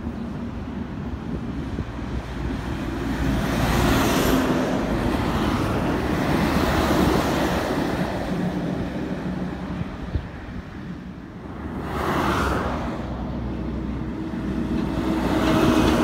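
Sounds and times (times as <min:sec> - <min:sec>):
truck engine rumble: 0:00.0 - 0:12.0, 0:12.6 - 0:16.0
wind on microphone: 0:00.0 - 0:16.0.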